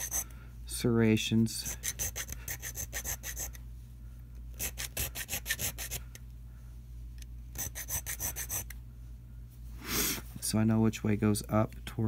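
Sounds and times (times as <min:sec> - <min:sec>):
file scraping metal key: 0:00.0 - 0:00.2, 0:01.6 - 0:03.6, 0:04.6 - 0:06.0, 0:07.6 - 0:08.7.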